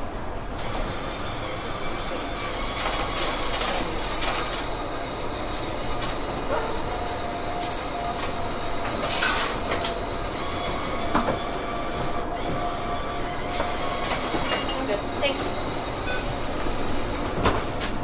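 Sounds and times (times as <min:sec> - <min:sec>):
bus cabin rumble: 0:00.0 - 0:18.0
brief steady tone: 0:16.0 - 0:16.4.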